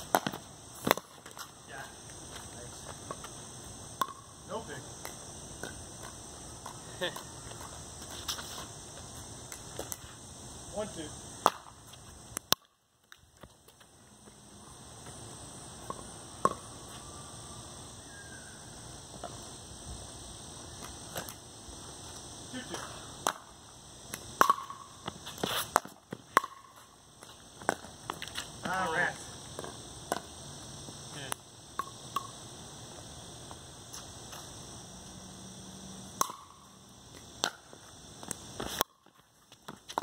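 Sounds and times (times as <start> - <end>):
paddles hitting ball: 0.0 - 1.5
steady high hiss: 0.0 - 40.0.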